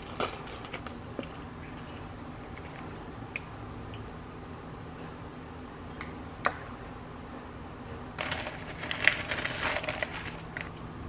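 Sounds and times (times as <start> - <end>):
plastic bag crinkling: 0.0 - 1.4, 8.2 - 10.8.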